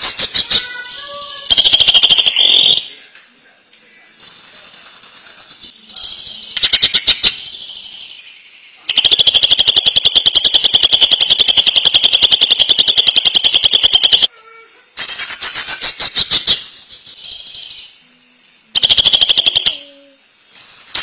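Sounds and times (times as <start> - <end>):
bird singing rattling phrase: 0.0 - 3.0, 4.1 - 14.3.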